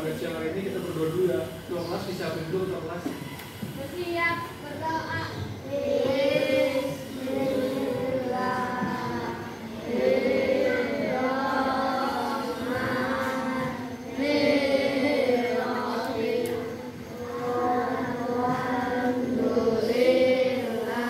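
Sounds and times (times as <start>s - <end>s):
schoolchildren chanting in unison: 4.8s - 21.0s.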